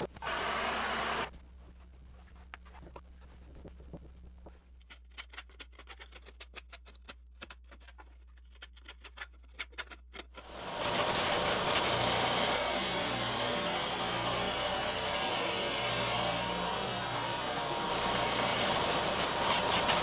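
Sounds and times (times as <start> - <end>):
belt sander running: 0.2 - 1.3, 10.4 - 20.0.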